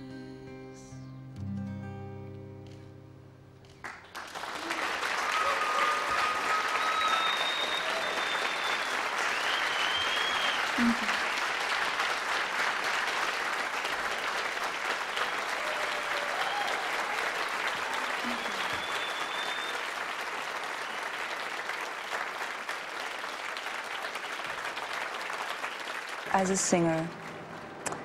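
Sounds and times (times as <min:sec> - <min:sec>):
audience applause and cheering: 0:03.8 - 0:28.0
crowd whistling: 0:04.4 - 0:11.4, 0:15.1 - 0:21.5.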